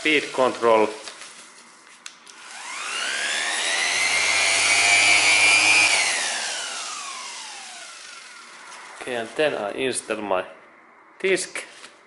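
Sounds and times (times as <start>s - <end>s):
orbital sander motor whine: 2.4s - 9.4s.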